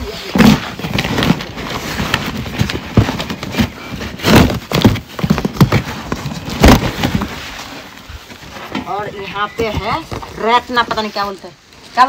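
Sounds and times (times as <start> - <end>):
cord scraping on cardboard: 0.2 - 9.0
cardboard box knocks: 2.2 - 7.3.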